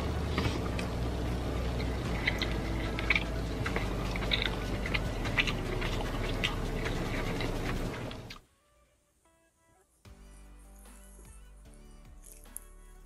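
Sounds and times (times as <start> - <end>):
close-up chewing: 0.0 - 8.4.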